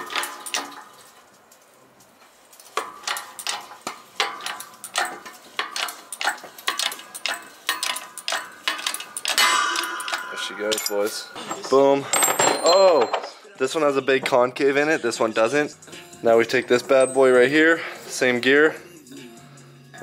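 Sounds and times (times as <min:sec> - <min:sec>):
ringing metallic clatter: 0:00.0 - 0:01.3, 0:02.6 - 0:13.4, 0:16.4 - 0:18.6
rapid metallic clicks: 0:02.8 - 0:11.2.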